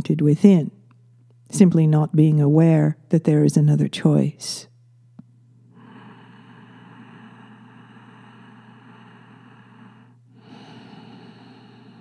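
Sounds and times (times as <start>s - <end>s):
low electrical hum: 0.0s - 12.0s
person breathing slowly: 5.7s - 12.0s.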